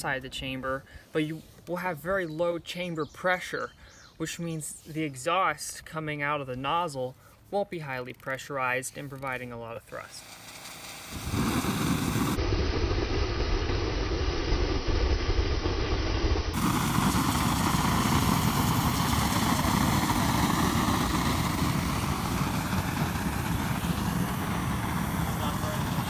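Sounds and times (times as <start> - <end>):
rocket engine roaring: 10.0 - 26.0.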